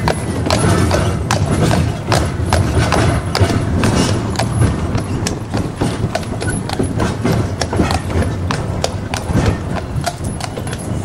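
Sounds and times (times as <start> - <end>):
horse hooves clip-clopping: 0.0 - 11.0
tram rumbling on rails: 0.0 - 11.0.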